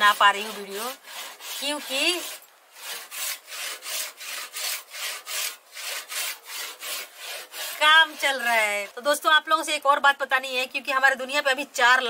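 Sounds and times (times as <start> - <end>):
hand saw cutting wood: 0.0 - 9.2.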